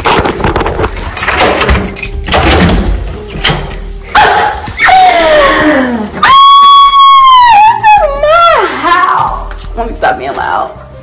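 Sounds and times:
door being unlocked and opened: 0.0 - 3.9
woman screaming excitedly: 4.2 - 9.0.

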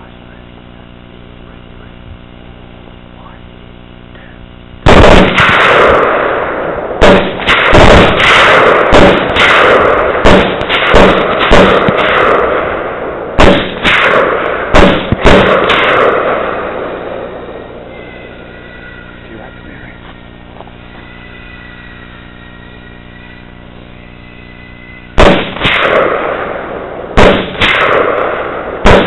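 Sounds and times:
rapid rifle gunfire with echo: 4.8 - 18.0, 25.2 - 29.0.

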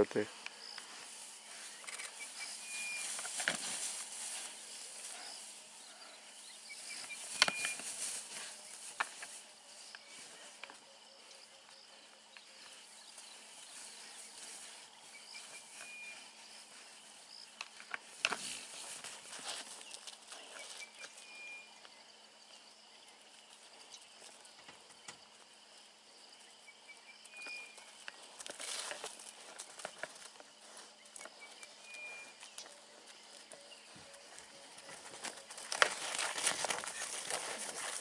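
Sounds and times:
insects chirring: 0.0 - 38.0.

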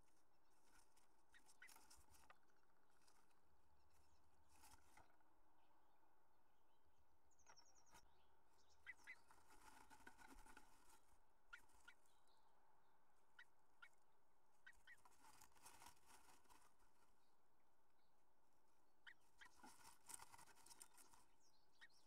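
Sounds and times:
bird rustling twigs in nest: 0.1 - 5.2, 9.1 - 11.1, 19.4 - 21.4.

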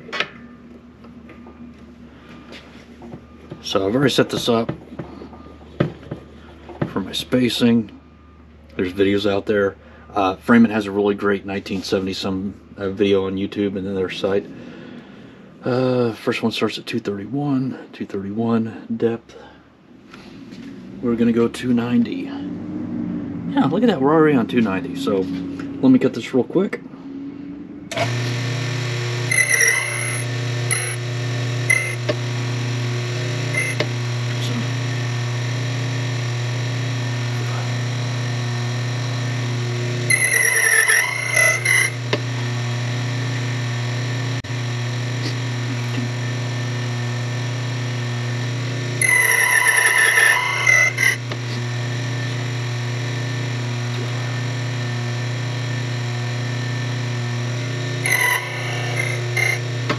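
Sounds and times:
electric motor humming: 28.0 - 59.9
key cutter squealing: 29.3 - 31.0, 31.7 - 32.2, 33.5 - 33.9, 40.1 - 42.1, 49.0 - 51.3, 58.0 - 59.7.

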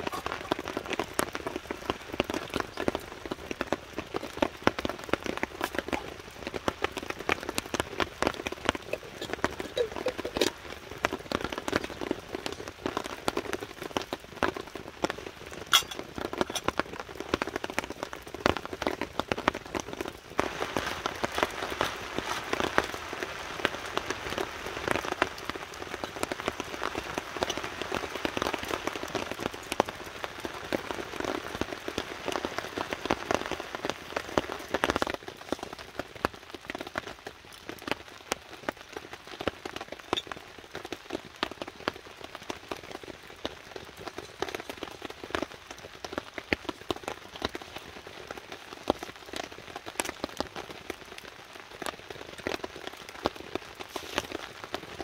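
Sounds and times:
heavy rain on a tarp: 0.0 - 55.0.

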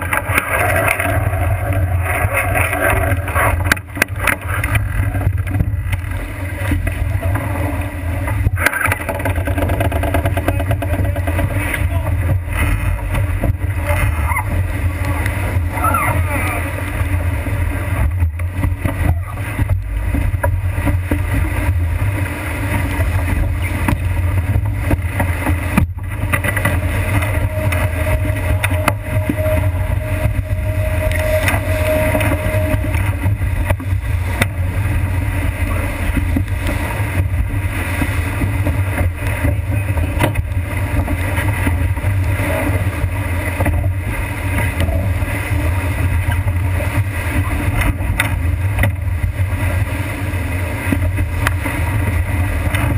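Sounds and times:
steady low rumble: 0.0 - 52.9
water rushing and splashing: 0.0 - 52.9
wind buffeting microphone: 0.0 - 52.9.

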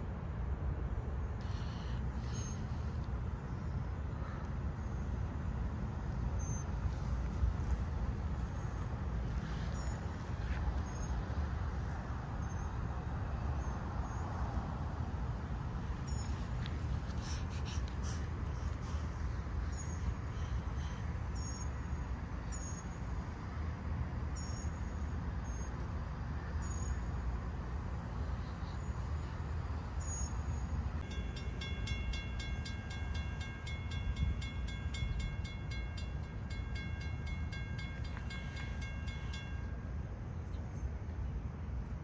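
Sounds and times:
railroad crossing bell ringing: 31.0 - 41.0.

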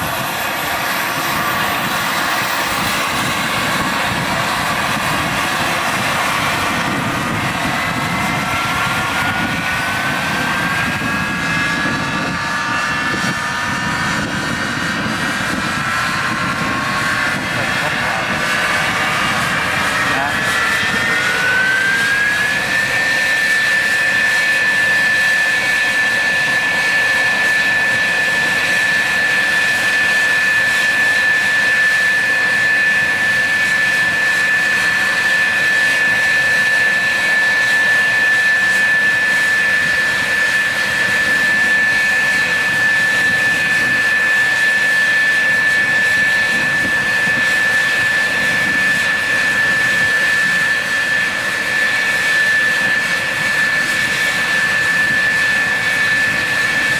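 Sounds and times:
jet engine idling whine: 0.0 - 56.9.

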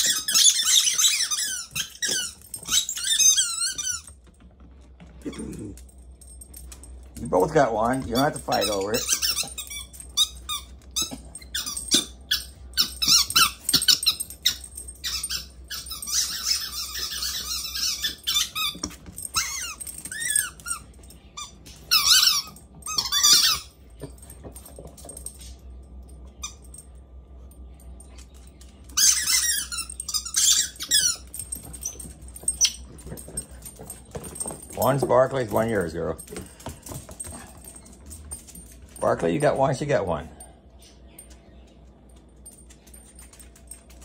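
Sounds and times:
squeaky dog toys squeaking: 0.0 - 4.2, 7.8 - 23.8, 28.9 - 36.1.

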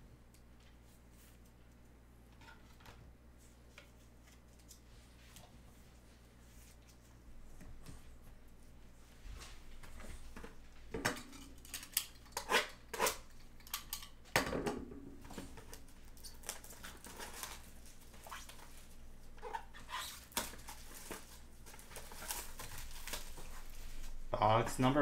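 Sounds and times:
cardboard box and cards rustling: 15.3 - 24.2.

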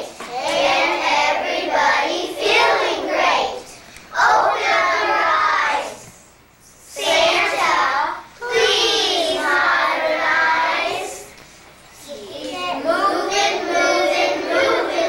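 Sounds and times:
young children singing: 0.0 - 6.2, 6.9 - 11.4, 12.0 - 15.0.

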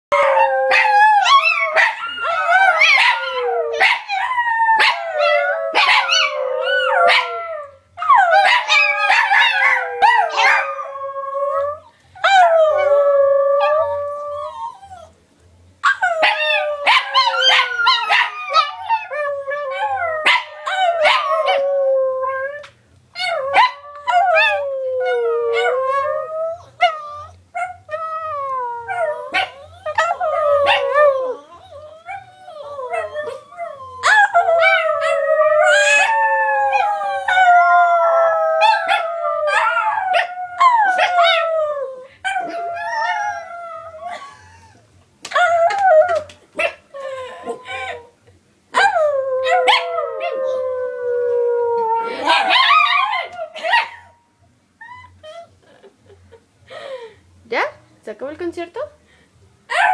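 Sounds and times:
dogs howling: 0.1 - 15.1, 15.8 - 44.3.

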